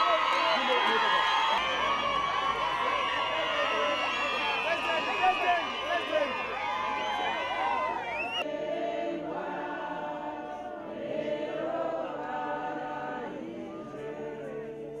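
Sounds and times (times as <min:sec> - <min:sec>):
group singing in harmony: 0:08.1 - 0:15.0.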